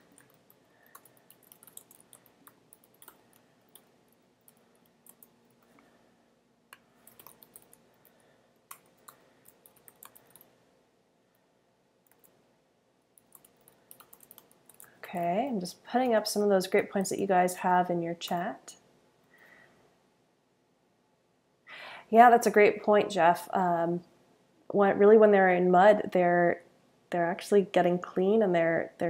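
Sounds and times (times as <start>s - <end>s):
computer keyboard typing: 0.0s - 5.4s, 7.0s - 10.5s, 12.0s - 12.4s, 13.2s - 15.0s.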